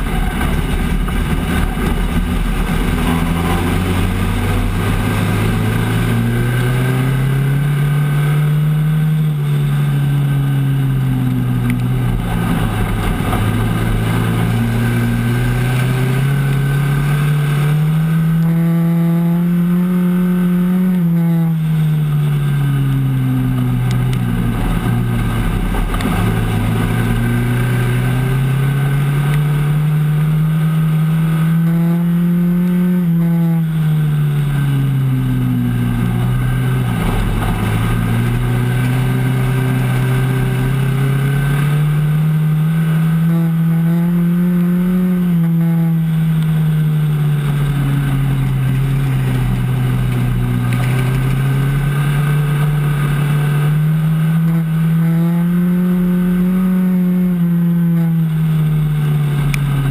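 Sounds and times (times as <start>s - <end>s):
truck engine running hard: 0.0s - 18.5s, 21.5s - 31.7s, 33.6s - 43.9s.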